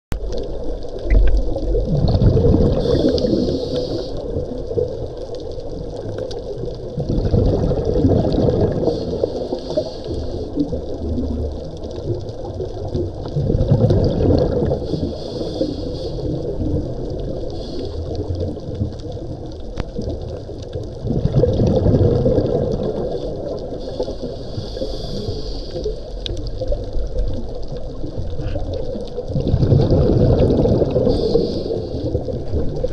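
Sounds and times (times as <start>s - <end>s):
bubbles rushing on exhale: 0.2s - 32.9s
regulator hiss on inhale: 2.7s - 4.5s, 8.7s - 10.8s, 14.7s - 16.7s, 17.3s - 18.5s, 23.1s - 26.4s, 30.9s - 32.4s.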